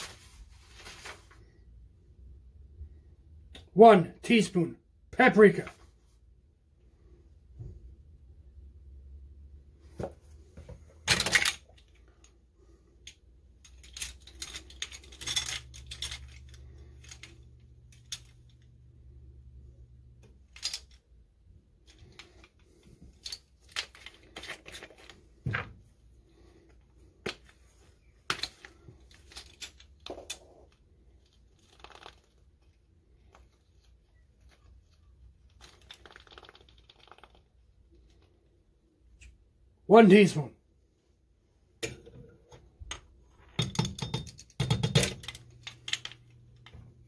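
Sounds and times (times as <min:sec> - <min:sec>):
plastic spoons clacking and rattling: 0:13.1 - 0:18.6, 0:28.3 - 0:32.4, 0:43.5 - 0:46.7.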